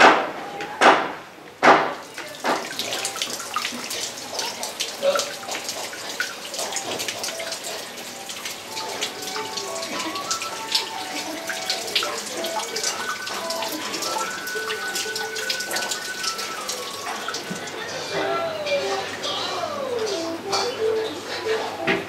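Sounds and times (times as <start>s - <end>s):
faint music: 0.0s - 22.0s
water splashing into pond: 0.8s - 17.9s.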